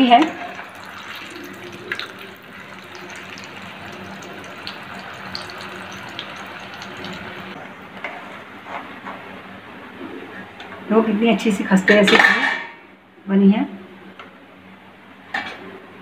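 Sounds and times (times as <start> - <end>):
food sizzling in hot oil: 0.2 - 7.6.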